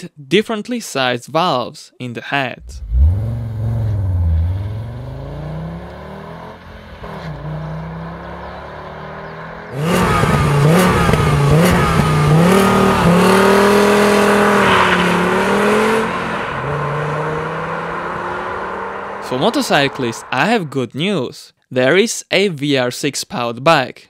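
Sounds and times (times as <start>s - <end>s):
car engine revving hard: 2.6s - 20.4s
car engine accelerating away: 2.6s - 20.8s.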